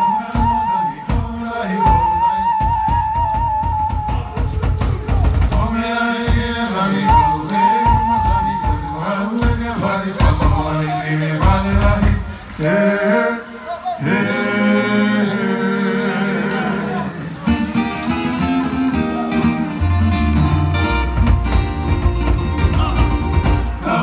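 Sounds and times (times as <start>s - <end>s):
steady drum beat: 0.0s - 12.4s, 17.5s - 24.0s
plucked strings: 17.5s - 24.0s
person singing: 22.6s - 24.0s.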